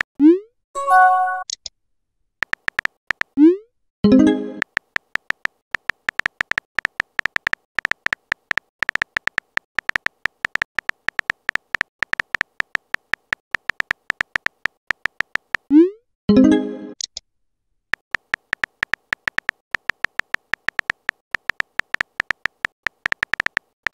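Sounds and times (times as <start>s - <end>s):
phone keyboard typing clicks: 2.4s - 3.4s, 4.5s - 15.7s, 18.0s - 23.9s.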